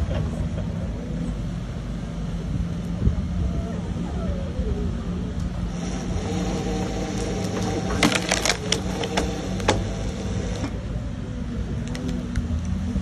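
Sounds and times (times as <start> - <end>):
excavator engine running: 0.0 - 13.0
log splitter boring into log: 5.7 - 10.8
wood cracking: 7.1 - 9.9.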